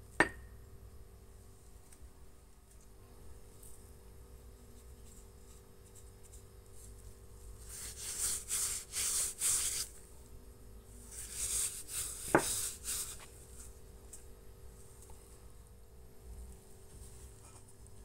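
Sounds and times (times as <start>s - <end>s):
gloved hands rubbing in flour: 4.7s - 10.0s, 11.0s - 13.8s.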